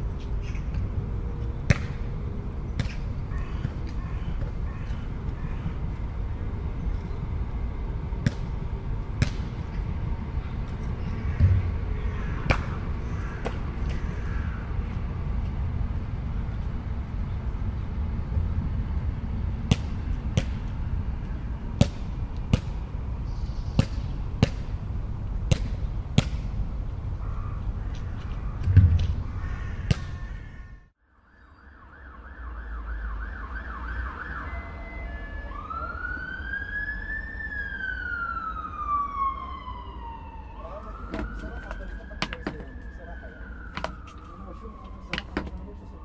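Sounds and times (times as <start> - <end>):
traffic rumble: 0.0 - 31.0, 31.6 - 46.0
emergency vehicle siren: 30.1 - 46.0.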